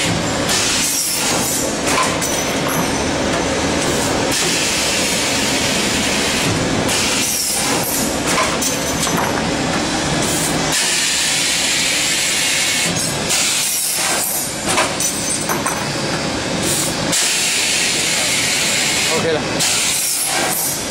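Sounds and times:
machine mechanical clatter: 0.0 - 4.6, 6.5 - 11.1, 12.8 - 17.6, 19.6 - 20.9
machine clicks and knocks: 1.2 - 3.9, 7.6 - 9.8, 12.9 - 16.2
pneumatic air hisses: 4.3 - 8.0, 10.2 - 14.5, 16.6 - 20.8.

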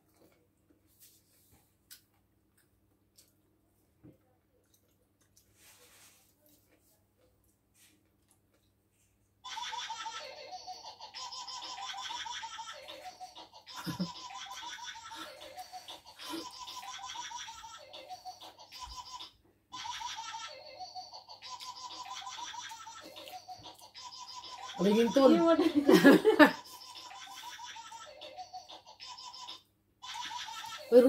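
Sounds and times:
laughter through phone speaker: 9.5 - 19.0, 19.8 - 29.5.

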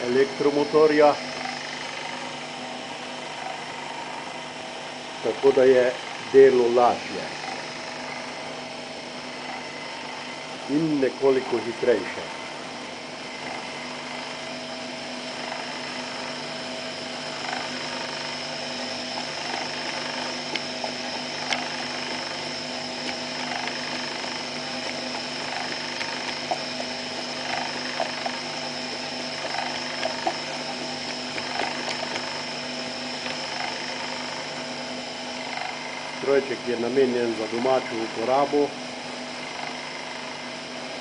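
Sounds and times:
electric motor hum and whine: 0.0 - 41.0
small irregular clicks: 21.4 - 22.2, 23.0 - 26.8.

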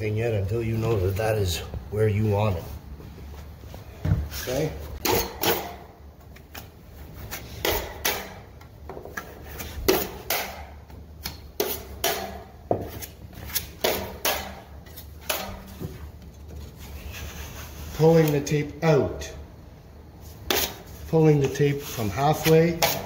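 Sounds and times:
drywall knife scraping: 11.6 - 15.8, 16.8 - 18.6, 20.4 - 23.0.

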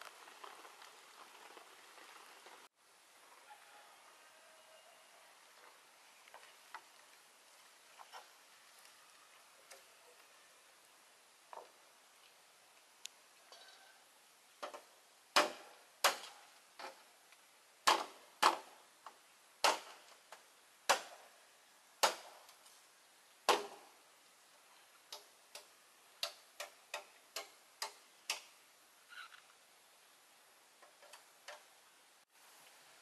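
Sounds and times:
blade chopping bamboo: 15.4 - 16.4, 17.9 - 18.7, 19.6 - 20.0, 20.9 - 21.2, 23.5 - 23.8.

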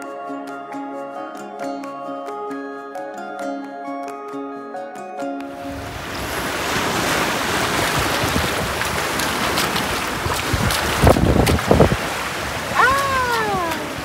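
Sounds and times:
small waves washing onto sand: 5.6 - 14.0
wind buffeting microphone: 5.7 - 14.0.

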